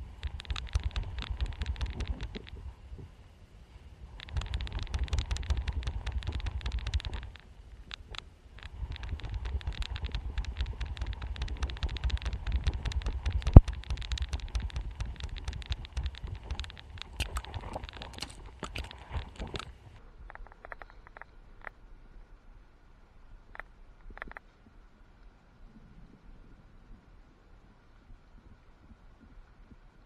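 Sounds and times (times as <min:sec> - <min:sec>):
rapid clicking: 0:00.0 - 0:02.7, 0:04.2 - 0:21.3
low rumble: 0:04.1 - 0:20.4.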